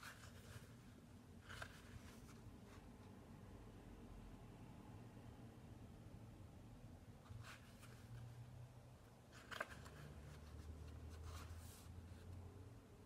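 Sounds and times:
paper pages rustling: 0:00.0 - 0:00.8, 0:01.4 - 0:02.9, 0:09.3 - 0:12.0
low room hum: 0:00.0 - 0:13.0.

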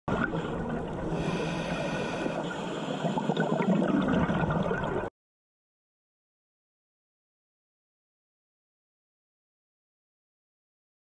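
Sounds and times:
muffled underwater water noise: 0:00.1 - 0:05.1.

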